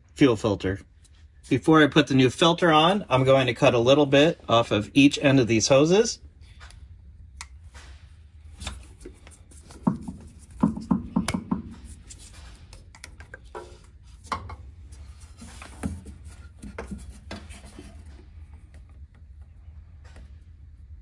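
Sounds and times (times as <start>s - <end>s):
handling of hose and tools: 11.8s - 19.3s.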